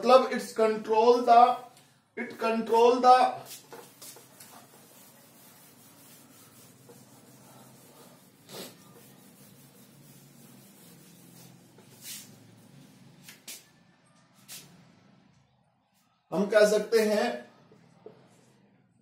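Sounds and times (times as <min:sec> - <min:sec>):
duster rubbing on whiteboard: 0:03.4 - 0:13.7.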